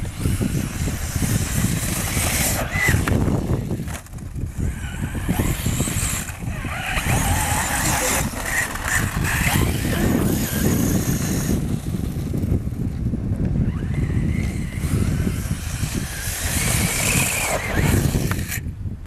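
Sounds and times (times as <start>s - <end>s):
electric motor whine: 0.0s - 18.7s.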